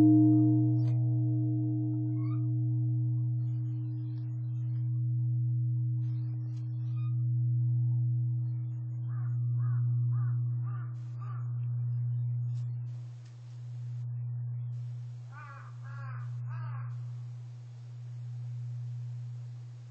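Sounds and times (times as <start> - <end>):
temple bell humming: 0.0 - 19.9
bird calling: 8.9 - 13.0, 14.8 - 17.2.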